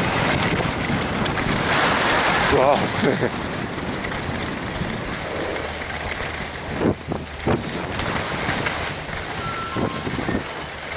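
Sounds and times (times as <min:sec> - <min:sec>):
skis sliding over snow: 0:00.0 - 0:10.9
wind on microphone: 0:00.0 - 0:10.9
ski scrapes: 0:01.6 - 0:02.8, 0:07.5 - 0:10.7.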